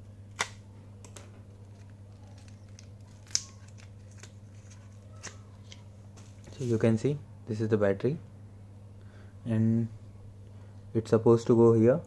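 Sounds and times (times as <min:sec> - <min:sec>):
steady low hum: 0:00.0 - 0:12.0
packaging crinkling: 0:01.5 - 0:06.8.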